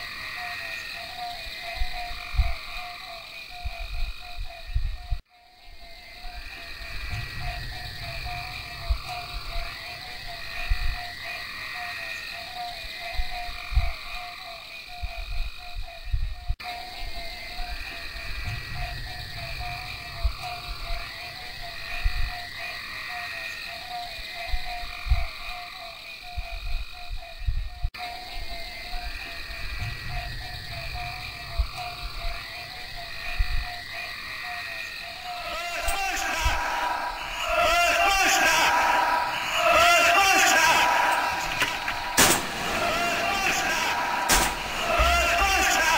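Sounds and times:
frogs croaking: 0.0s - 45.9s
high-pitched insect drone: 0.0s - 45.9s
steady high hiss: 28.0s - 45.9s.

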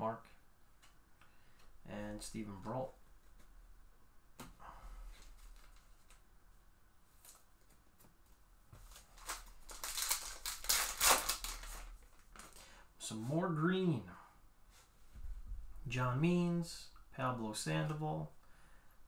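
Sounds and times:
foil pack crinkling and ripping: 8.9s - 12.7s.

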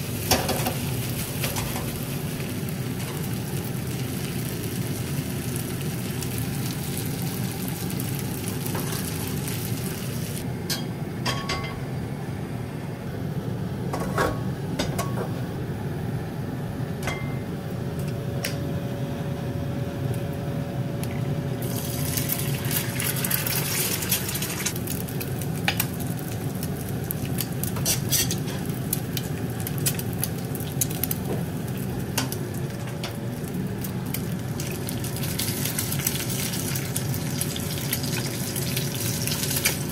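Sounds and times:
egg sizzling in hot oil: 0.0s - 10.5s, 21.6s - 39.9s
metal utensils clinking on pans: 10.7s - 11.8s, 27.8s - 28.7s.

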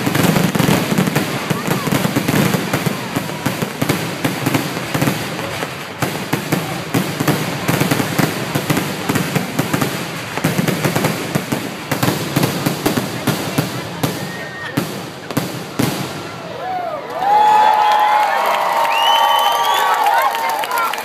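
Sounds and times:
heavy fireworks thumps: 0.0s - 16.4s
fireworks crackling and popping: 0.0s - 16.5s.

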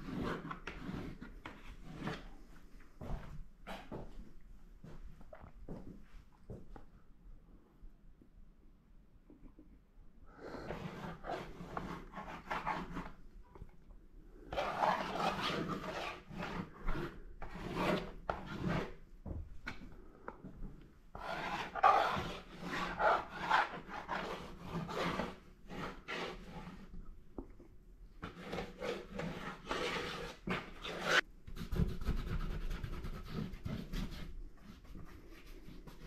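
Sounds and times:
paintbrush scrubbing on paper: 10.6s - 13.2s, 14.5s - 19.0s, 21.2s - 26.9s, 28.2s - 36.0s.

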